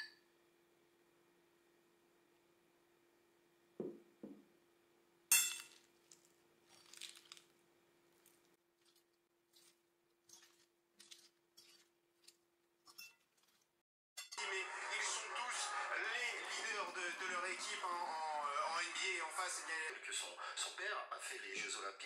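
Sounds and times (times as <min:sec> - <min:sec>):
soft knocks: 0:03.8 - 0:04.5
forks clinking on ceramic plate: 0:05.3 - 0:05.9.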